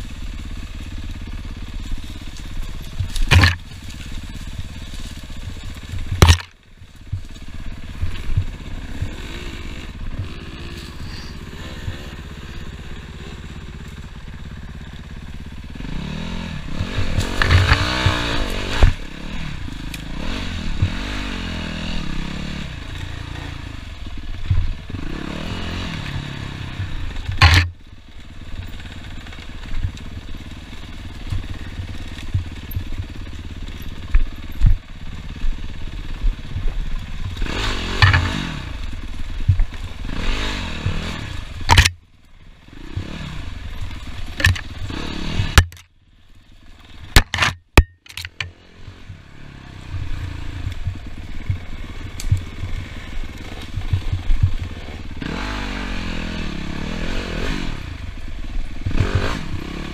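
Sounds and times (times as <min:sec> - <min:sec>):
dirt bike engine revving: 0:00.0 - 0:59.9
bike knocking and clattering: 0:00.1 - 0:09.4, 0:16.8 - 0:19.2, 0:26.8 - 0:40.1, 0:40.8 - 0:42.0, 0:42.9 - 0:45.9, 0:47.0 - 0:49.2, 0:49.9 - 0:55.1.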